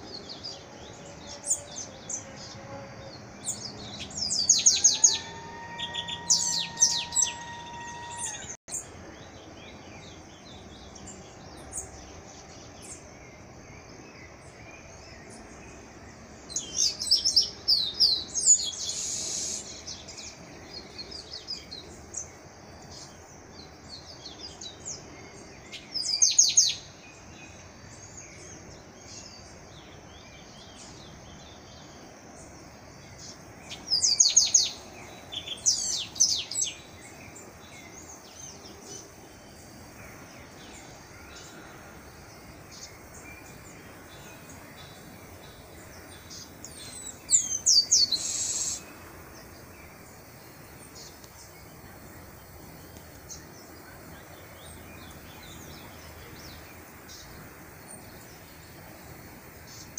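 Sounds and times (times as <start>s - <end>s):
blackbird singing: 0.0s - 13.8s, 33.1s - 39.6s, 42.7s - 49.8s
outdoor background noise: 0.0s - 59.9s.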